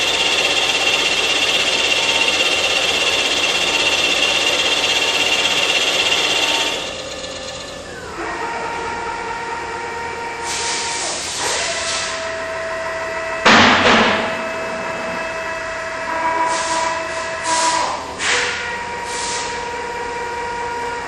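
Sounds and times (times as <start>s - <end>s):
loud burst of noise: 0.0s - 7.9s
machine whine with hissy surges: 0.0s - 13.4s.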